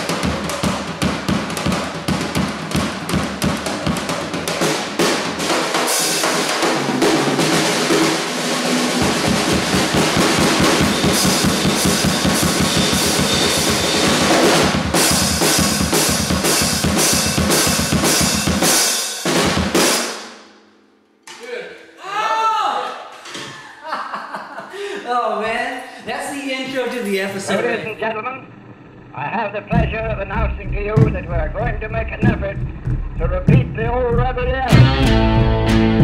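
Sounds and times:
drum kit played with sticks: 0.0s - 20.4s, 29.7s - 36.0s
cymbals ringing: 8.1s - 14.4s.

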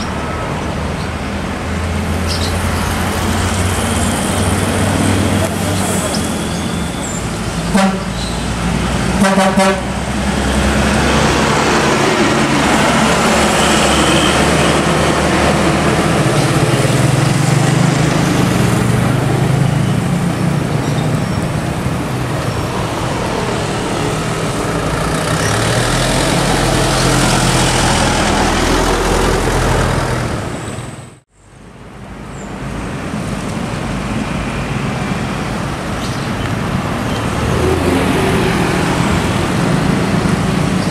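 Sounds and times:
bus horn toots: 7.6s - 8.3s, 9.1s - 10.1s
bus diesel engine pulling away: 9.8s - 31.2s.

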